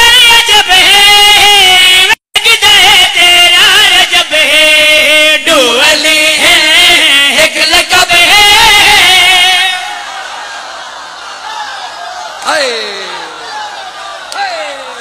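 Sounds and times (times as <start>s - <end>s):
men singing into microphones: 0.0s - 10.1s.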